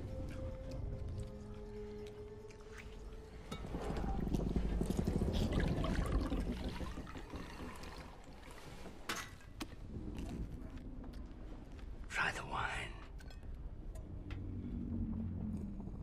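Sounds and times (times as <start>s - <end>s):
noisy chewing with wet mouth sounds: 0.0s - 3.4s.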